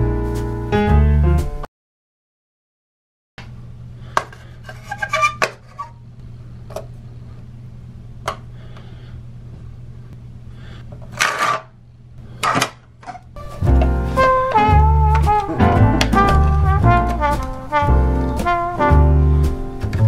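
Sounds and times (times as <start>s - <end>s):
steady low hum: 5.6s - 20.0s.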